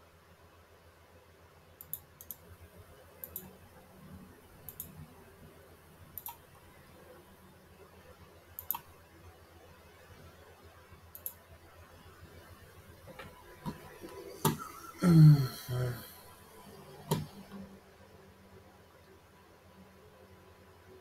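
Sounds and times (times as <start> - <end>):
faint low hum: 0.0 - 21.0
computer mouse clicking: 1.8 - 2.5, 3.2 - 3.6, 4.6 - 5.0, 6.1 - 6.4, 8.6 - 8.9, 11.1 - 11.4, 17.1 - 17.6.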